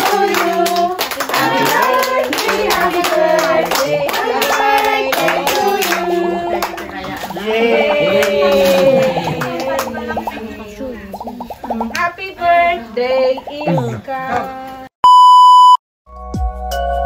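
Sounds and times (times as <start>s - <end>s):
group singing a celebration song: 0.0s - 14.6s
clapping in time: 0.3s - 7.1s, 7.9s - 10.4s.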